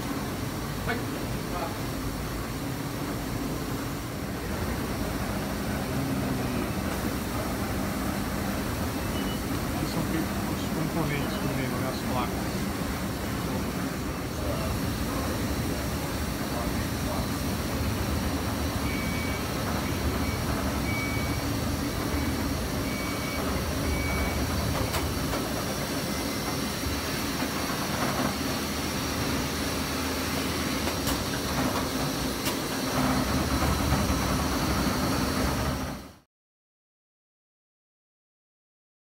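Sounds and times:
assembly machines humming and whirring: 0.0 - 36.2
short electronic beeps: 9.0 - 9.5, 18.8 - 21.5.

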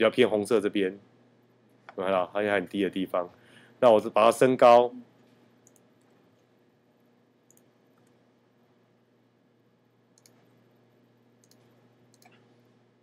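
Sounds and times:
faint steady hum: 0.0 - 13.0
computer mouse clicks: 5.6 - 6.5, 7.5 - 8.2, 10.2 - 10.5, 11.4 - 12.4.

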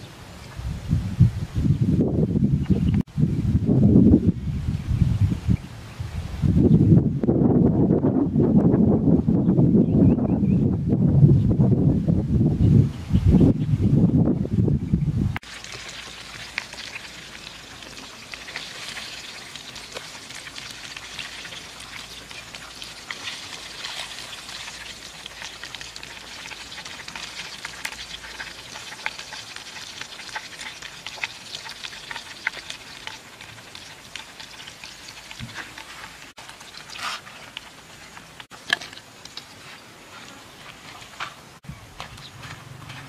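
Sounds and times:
fish frying in oil: 15.4 - 39.6.

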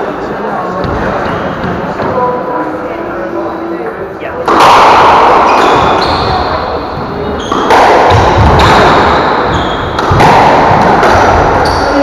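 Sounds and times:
squash ball hits echoing: 0.8 - 2.4, 4.4 - 12.0.

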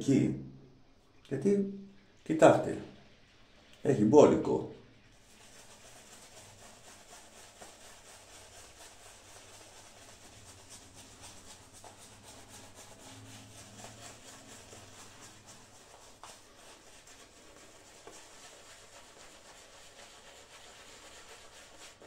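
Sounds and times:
shaving brush swishing: 4.4 - 22.0.

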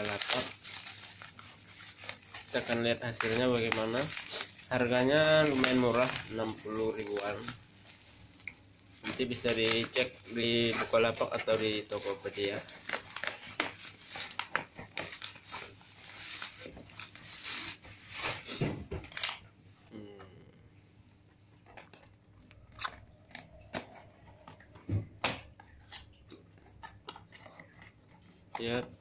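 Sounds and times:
scissors cutting plastic: 0.0 - 7.6, 8.4 - 17.8, 25.5 - 29.0
plastic crinkling and tearing: 0.0 - 19.4.

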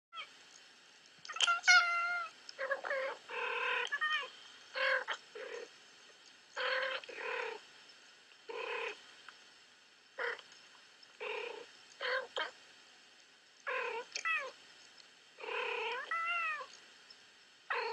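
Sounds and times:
cats meowing and yowling: 1.3 - 5.6, 6.6 - 7.6, 13.9 - 14.6, 15.6 - 16.7.

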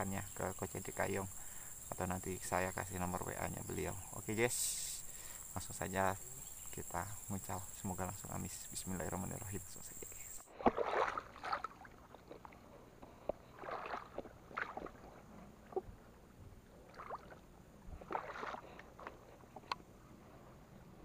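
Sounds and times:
lure splashing on water: 10.5 - 15.9, 16.8 - 19.8.

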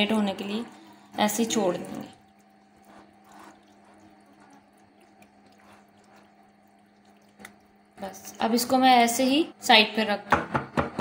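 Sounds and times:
wet squelching of stirring: 0.0 - 8.8
low steady hum: 0.0 - 10.2.

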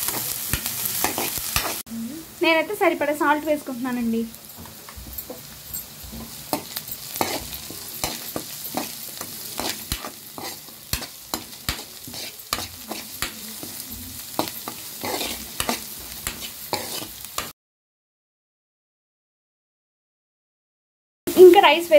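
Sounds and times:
metal spatula scraping frying pan: 0.0 - 1.8, 5.3 - 17.5
steady sizzle: 0.0 - 17.6, 21.3 - 21.9.

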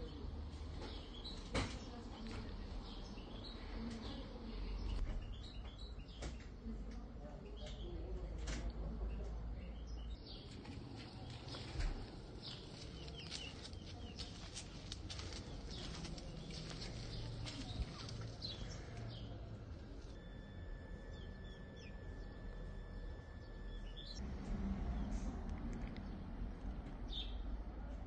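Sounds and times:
small birds chirping: 0.0 - 24.2, 27.0 - 27.5
steady high tone: 19.9 - 24.2.

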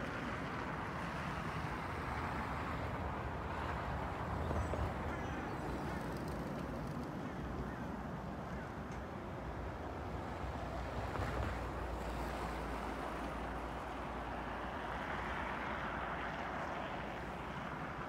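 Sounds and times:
cars passing on snowy road: 0.0 - 18.0.

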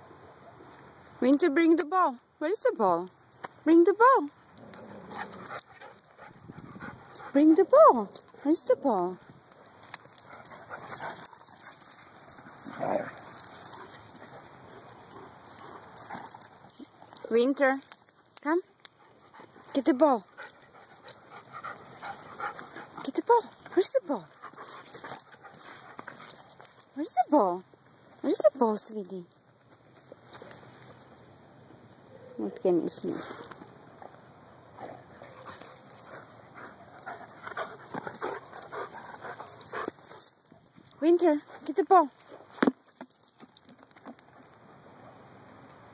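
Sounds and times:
dogs playing: 4.3 - 28.6, 33.2 - 45.2.

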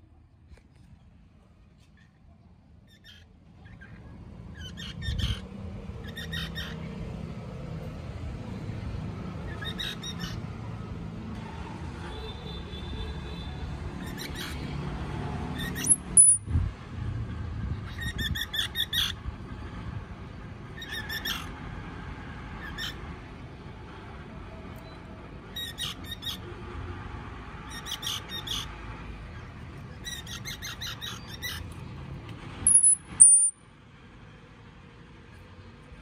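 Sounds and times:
baby squirrels squeaking: 4.6 - 6.9, 9.5 - 10.4, 14.0 - 14.7, 15.6 - 16.4, 17.9 - 19.2, 29.9 - 31.8, 32.6 - 33.6.

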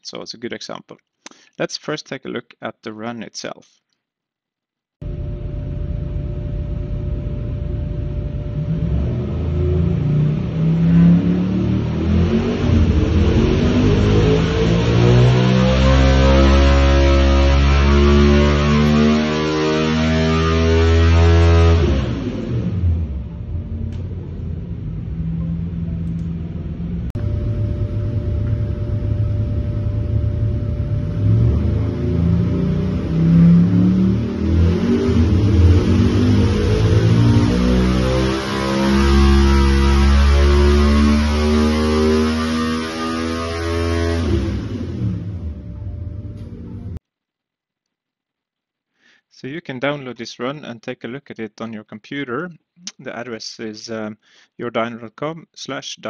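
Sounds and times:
engine idling rumble: 5.0 - 10.1, 22.7 - 32.4
racing engine running on dyno: 5.0 - 47.0.

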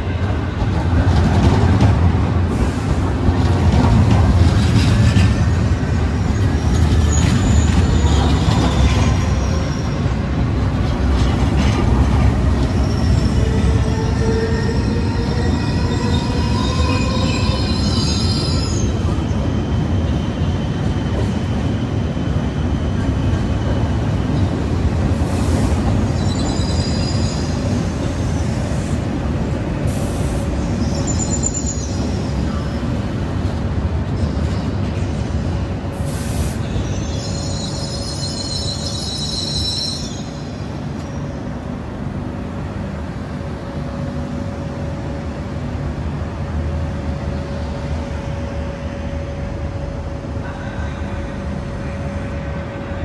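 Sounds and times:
train low rumble: 0.0 - 53.0
train wheels squealing on track: 4.3 - 29.2, 29.8 - 33.3, 34.1 - 41.7.

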